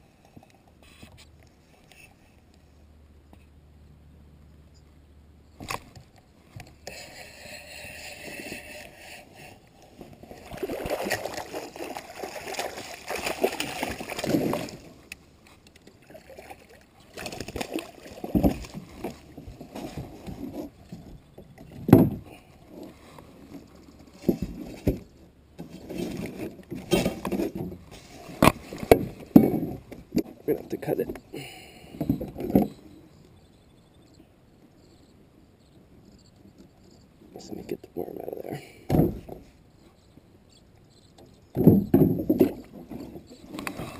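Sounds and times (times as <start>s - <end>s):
sharp knocks on kayak: 38.9s - 39.4s.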